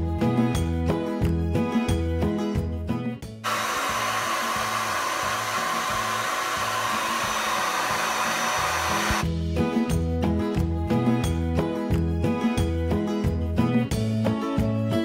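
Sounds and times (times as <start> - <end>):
electric air blower running: 3.4 - 9.3.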